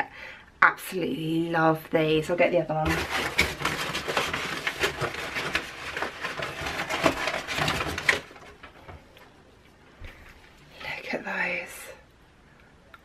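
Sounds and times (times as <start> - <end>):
packing paper rustling: 2.8 - 8.9.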